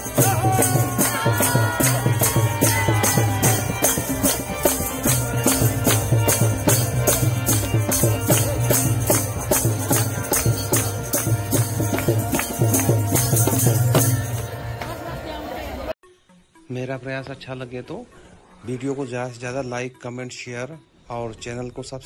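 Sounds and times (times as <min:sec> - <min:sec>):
dholak drum: 0:00.0 - 0:15.0
sharp high percussion strikes: 0:00.0 - 0:15.1
harmonium: 0:00.0 - 0:16.0.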